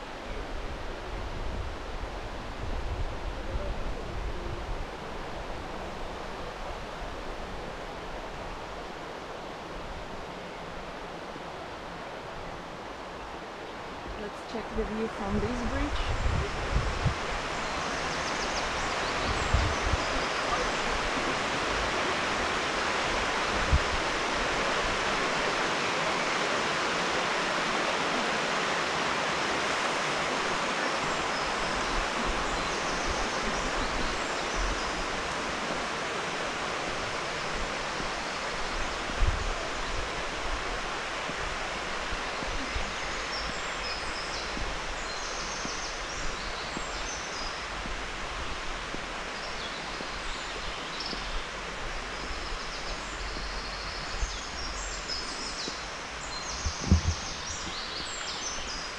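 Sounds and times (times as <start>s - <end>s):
river water flowing: 0.0s - 58.9s
low thumps: 56.6s - 57.8s.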